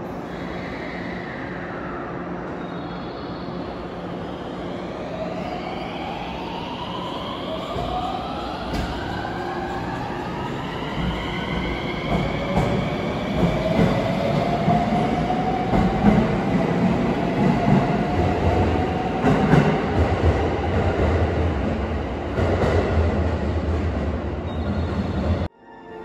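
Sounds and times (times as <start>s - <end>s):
train wheels clattering on rails: 7.7s - 15.0s.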